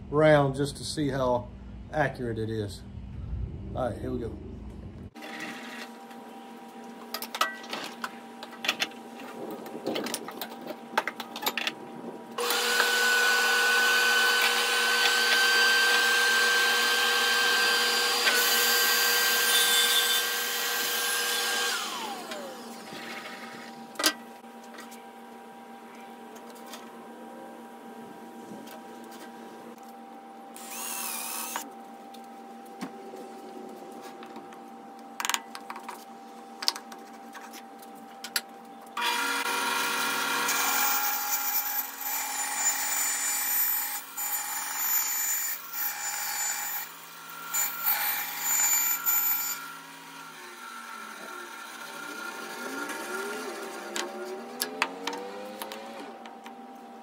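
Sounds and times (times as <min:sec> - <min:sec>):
low machine hum: 0:00.0 - 0:05.2
bandsaw cutting wood: 0:12.4 - 0:23.8, 0:30.6 - 0:31.6, 0:39.0 - 0:56.2.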